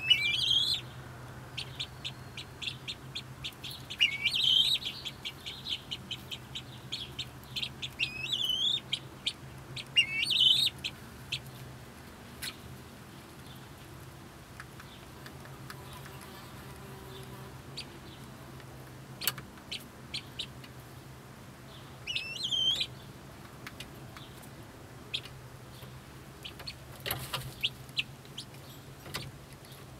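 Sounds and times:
guineafowl chattering: 0.0s - 0.9s, 1.6s - 11.6s, 22.0s - 23.0s.

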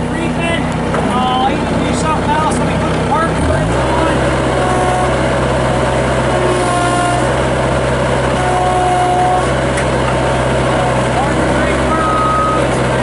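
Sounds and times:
diesel engine at high revs: 0.0s - 13.0s
thin whine: 4.0s - 13.0s.

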